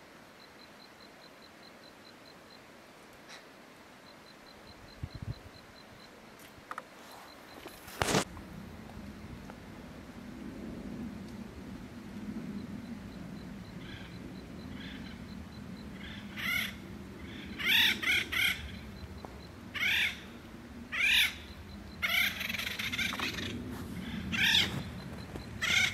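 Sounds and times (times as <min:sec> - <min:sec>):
woodpeckers harsh calls: 0:15.9 - 0:25.9.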